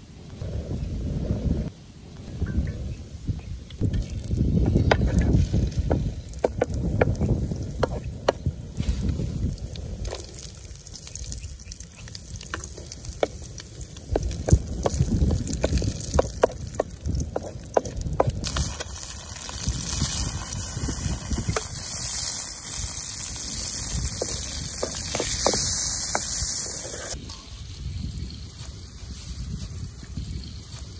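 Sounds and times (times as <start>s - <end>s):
food sizzling in oil: 3.8s - 30.9s
spatula scraping a wok: 23.4s - 27.6s.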